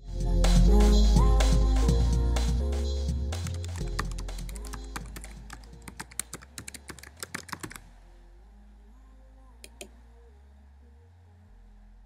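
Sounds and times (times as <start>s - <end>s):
keyboard typing: 3.4s - 7.9s.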